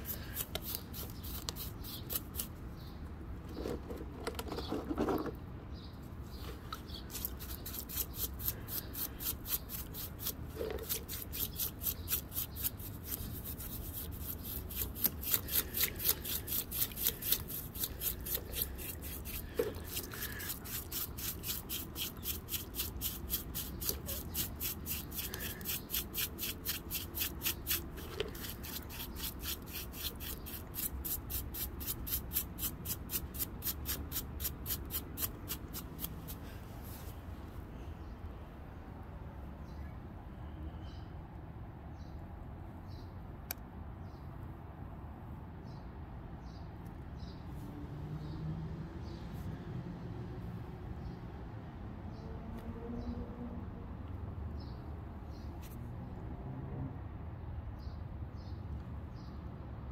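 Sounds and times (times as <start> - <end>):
paintbrush scrubbing rock: 0.0 - 2.5, 6.8 - 37.1.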